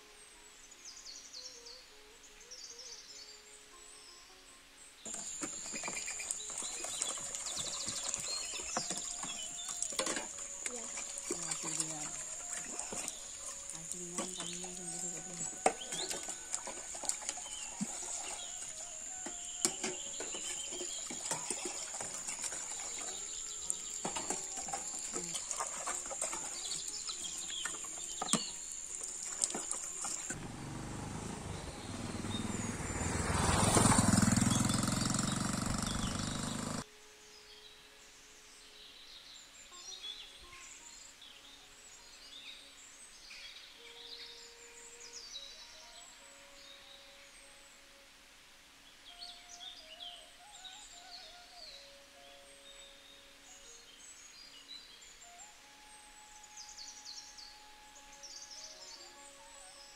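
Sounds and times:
birds chirping: 5.0 - 36.8.

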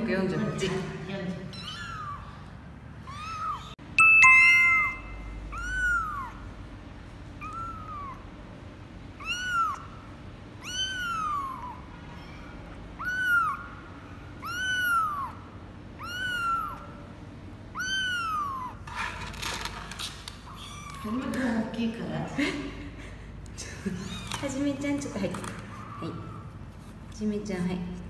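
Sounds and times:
kitten meowing: 0.3 - 2.4, 3.0 - 3.8, 4.5 - 6.5, 7.4 - 8.2, 9.2 - 10.0, 10.6 - 13.8, 14.4 - 15.4, 16.0 - 17.1, 17.7 - 18.8, 20.5 - 21.3.

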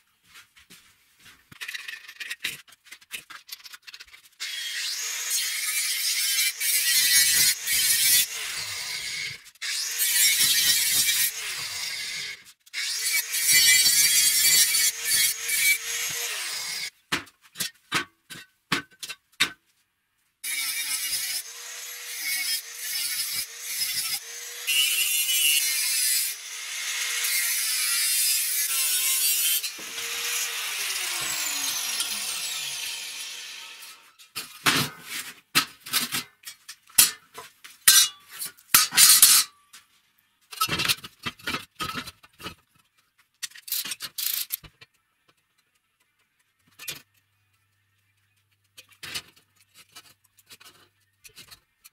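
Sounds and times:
angle grinder grinding metal: 4.4 - 16.9, 20.4 - 34.2
grinder winding down: 29.6 - 34.0.

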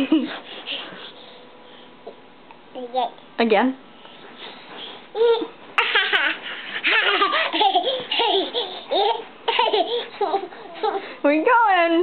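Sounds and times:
toddler giggling: 5.2 - 11.1.

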